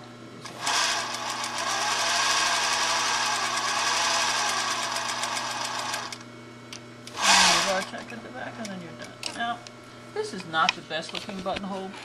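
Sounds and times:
sewing machine zigzag stitching: 0:00.4 - 0:06.2, 0:07.2 - 0:08.0.

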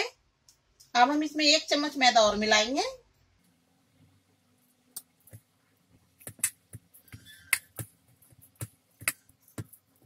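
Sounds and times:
hand kneading on metal plate: 0:05.2 - 0:10.0.

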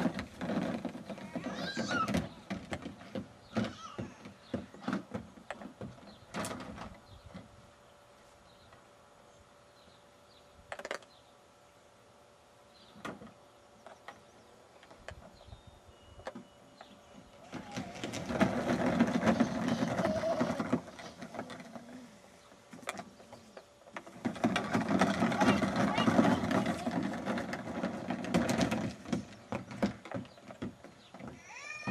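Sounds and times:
plastic wheels rumbling on track: 0:00.0 - 0:07.5, 0:16.8 - 0:31.9.

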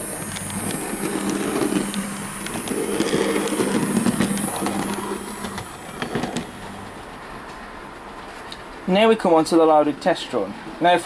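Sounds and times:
model train motor humming: 0:00.0 - 0:07.2.

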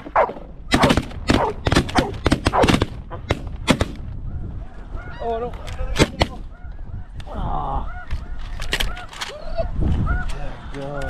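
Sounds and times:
shotgun shots: 0:00.0 - 0:04.0
wind rumble on microphone: 0:00.2 - 0:11.0
geese calling: 0:04.2 - 0:11.0.

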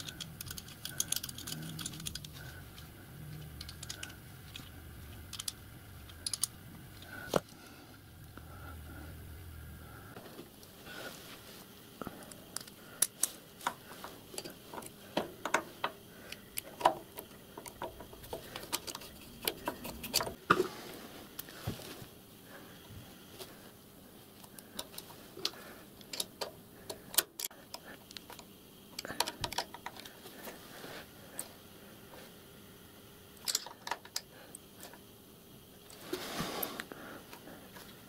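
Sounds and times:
small metallic clicks and taps: 0:00.0 - 0:02.4, 0:03.3 - 0:06.5, 0:12.5 - 0:20.4, 0:24.4 - 0:30.1.

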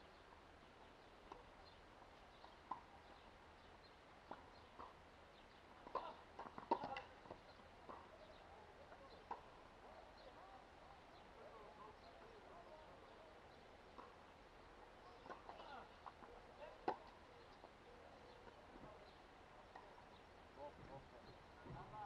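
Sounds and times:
tennis balls struck by rackets: 0:04.2 - 0:08.2, 0:15.2 - 0:17.7.

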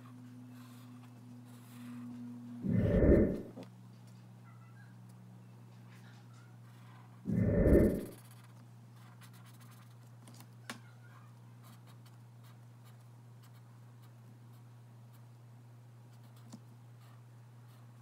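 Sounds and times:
steady low hum: 0:01.1 - 0:03.7, 0:07.3 - 0:08.4
marker pen scratching paper: 0:07.8 - 0:10.0.

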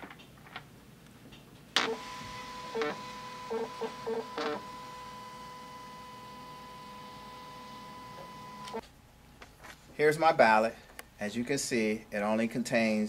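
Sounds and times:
printer motor whine: 0:01.8 - 0:08.8.

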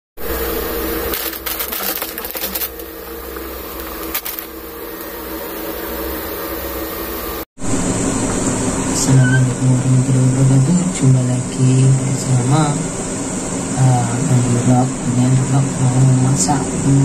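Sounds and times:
low hum: 0:00.2 - 0:17.0
plastic packets crinkling: 0:00.8 - 0:05.2.

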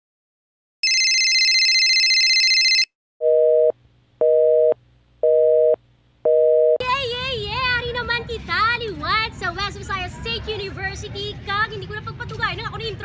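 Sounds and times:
telephone busy signal beeping: 0:00.8 - 0:03.7.

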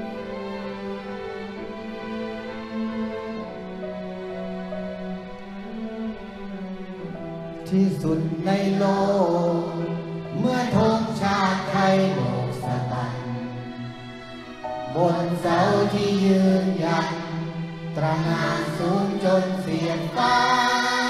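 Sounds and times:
orchestra with violins: 0:00.0 - 0:21.0
man singing into a microphone: 0:07.6 - 0:13.4, 0:18.0 - 0:20.2
children's choir: 0:07.8 - 0:21.0.

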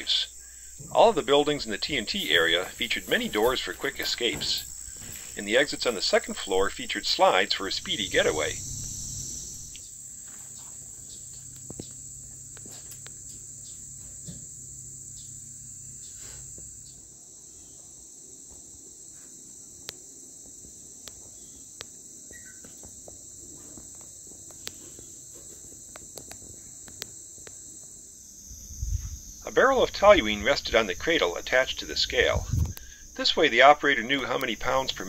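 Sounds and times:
faint low hum: 0:00.0 - 0:17.8, 0:28.5 - 0:35.0
insects trilling: 0:00.0 - 0:35.0.

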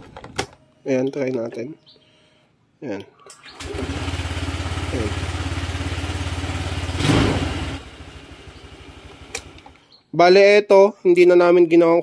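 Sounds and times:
scooter engine starting and running: 0:03.4 - 0:09.9.

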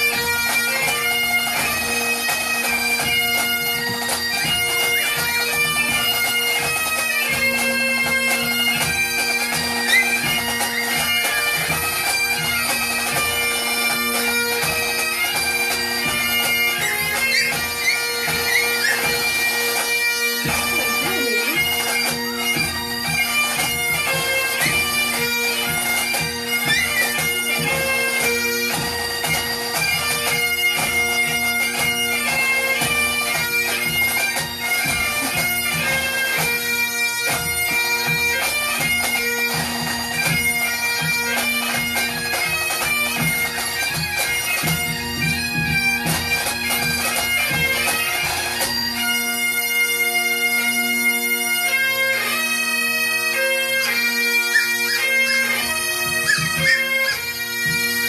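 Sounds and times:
bagpipe music through speakers: 0:00.0 - 0:58.0.

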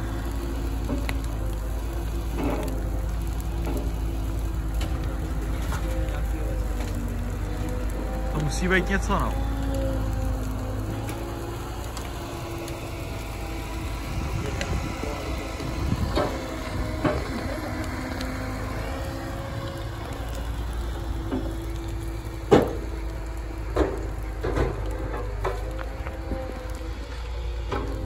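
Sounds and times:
excavator diesel engine running: 0:00.0 - 0:28.0
sharp cracks and pops: 0:00.0 - 0:28.0.

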